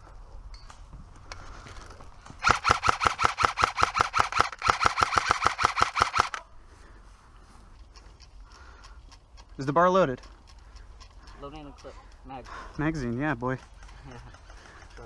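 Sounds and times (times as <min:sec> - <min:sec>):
airsoft rifle firing full auto: 0:02.4 - 0:06.4.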